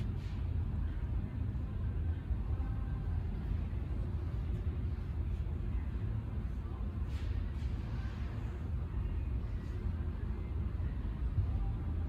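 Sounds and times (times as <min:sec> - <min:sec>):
store background rumble: 0:00.0 - 0:12.0.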